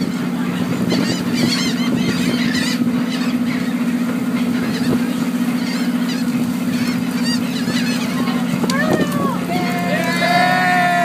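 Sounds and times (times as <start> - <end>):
diesel engine running: 0.0 - 11.0
gulls squawking: 0.0 - 11.0.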